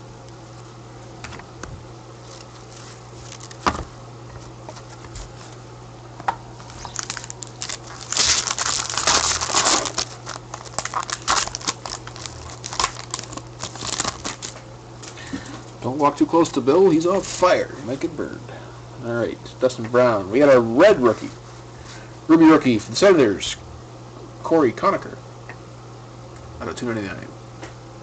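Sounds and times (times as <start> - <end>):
card pack wrapper crinkling and tearing: 2.2 - 3.8, 6.6 - 14.6.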